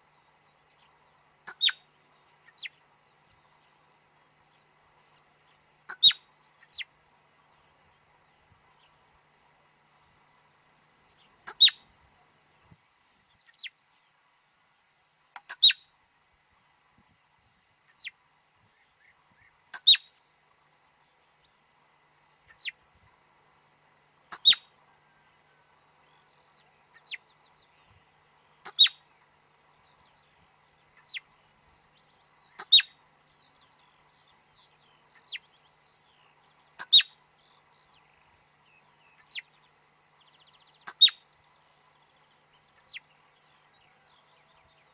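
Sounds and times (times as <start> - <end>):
marmots giving alarm whistles: 1.5 - 1.8, 11.5 - 11.8, 24.3 - 24.7, 28.7 - 29.0, 32.6 - 33.0, 36.8 - 37.2, 40.9 - 41.2.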